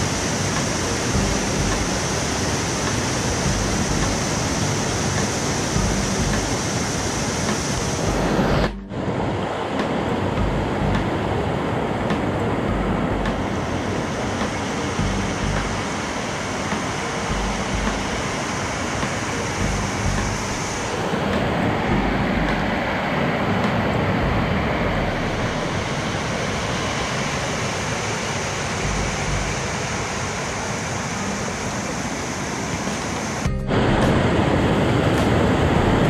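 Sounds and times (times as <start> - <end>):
low microphone rumbles: 3.4 - 4.2, 5.8 - 6.6, 8.0 - 9.1, 10.4 - 11.2, 12.6 - 13.6, 15.0 - 15.9, 19.6 - 22.9, 24.2 - 26.1.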